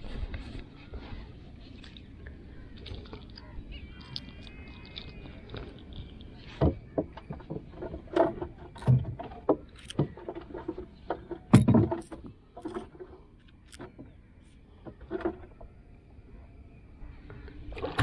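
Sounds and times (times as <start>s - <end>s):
small clicks of fishing gear: 1.8s - 6.5s, 12.2s - 14.1s
knocks and thumps on wooden boat: 6.5s - 13.2s, 14.8s - 15.8s.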